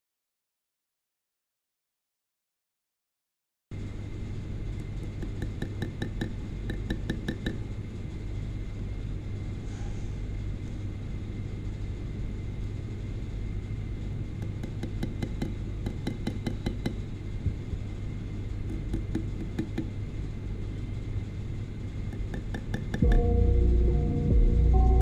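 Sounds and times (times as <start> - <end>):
steady low hum: 3.7 - 25.0
music: 23.0 - 25.0.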